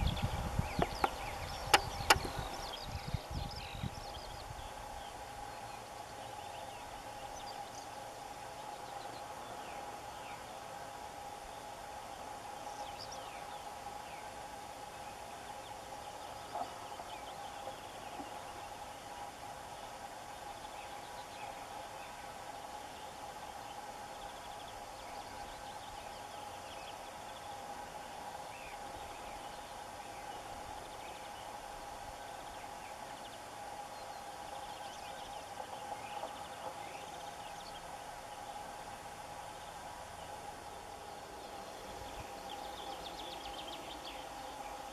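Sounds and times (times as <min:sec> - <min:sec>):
high falling songbird notes: 0:00.0 - 0:07.9
songbirds trilling: 0:00.0 - 0:44.9.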